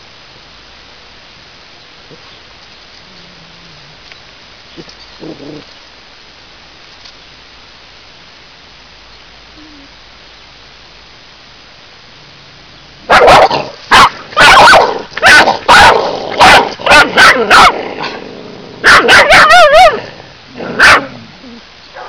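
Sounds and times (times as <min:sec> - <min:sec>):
dog barking: 0:13.1 - 0:17.8, 0:18.8 - 0:20.0, 0:20.8 - 0:21.1
dog yelping: 0:13.1 - 0:17.8, 0:18.8 - 0:20.0, 0:20.8 - 0:21.0.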